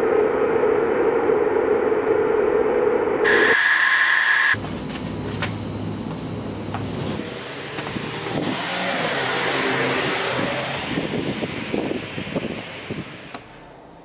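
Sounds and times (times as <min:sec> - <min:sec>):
vehicle passing by: 0:07.0 - 0:13.3.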